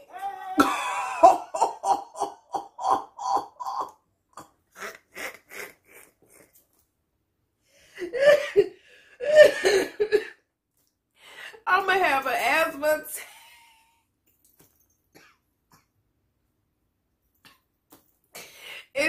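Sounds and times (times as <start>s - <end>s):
woman laughing hard: 0.5s - 4.0s.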